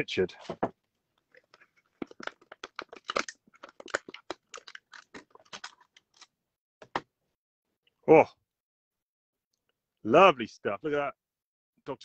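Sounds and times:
plastic bag crinkling: 1.3s - 6.2s.

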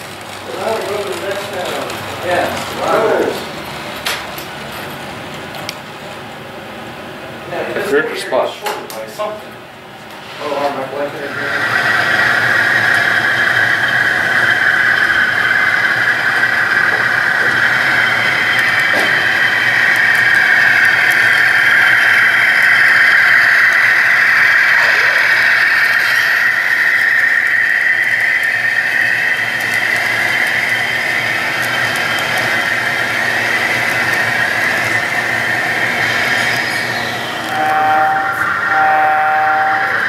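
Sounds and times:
model train squealing whine: 0.0s - 4.5s, 10.2s - 40.0s.

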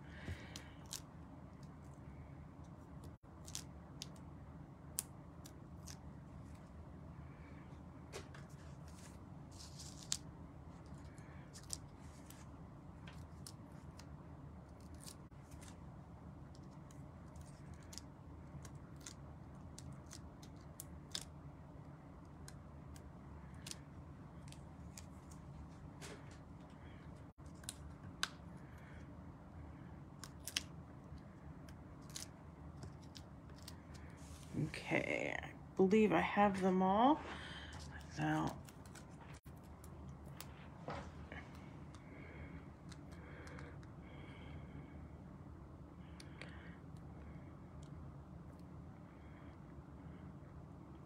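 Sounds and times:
steady low hum: 0.0s - 51.0s.

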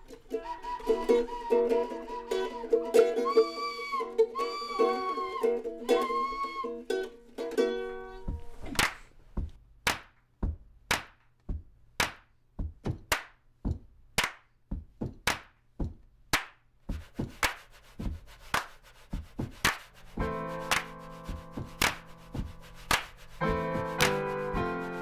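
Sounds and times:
plucked ukulele chords: 0.0s - 8.6s
rhythmic hand claps and slaps: 8.3s - 24.7s.

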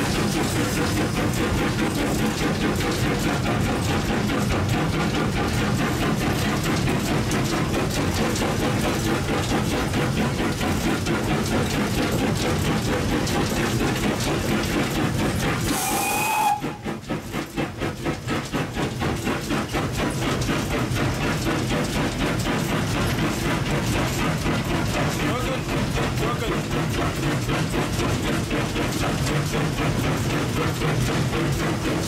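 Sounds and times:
steam hissing: 0.0s - 32.0s
steam locomotive running: 0.0s - 32.0s
steam whistle blast: 15.7s - 16.8s.

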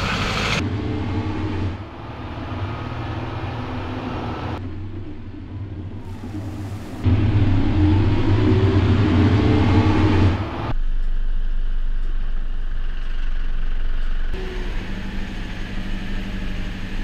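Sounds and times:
water washing against wheels: 0.0s - 10.8s
diesel engine whining under load: 0.0s - 17.0s.

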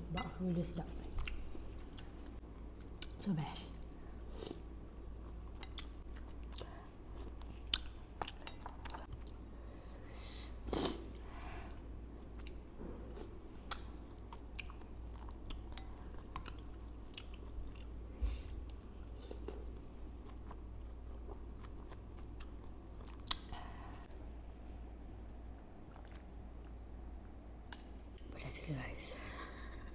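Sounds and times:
wet chewing mouth sounds: 25.8s - 26.7s.

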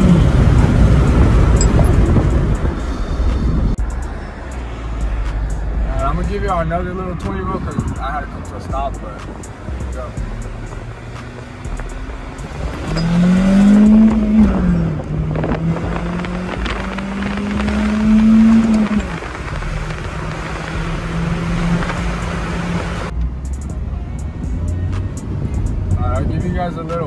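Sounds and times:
car engine accelerating: 0.0s - 27.0s.

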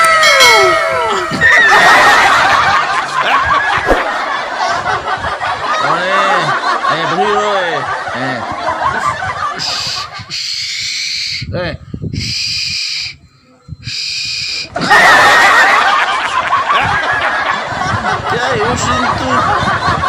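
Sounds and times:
group laughter: 1.3s - 10.3s, 14.7s - 20.0s.

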